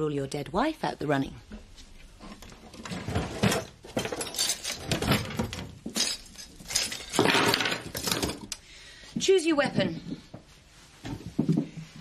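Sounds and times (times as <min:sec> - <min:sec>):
metal cutlery clattering: 0:02.8 - 0:08.6.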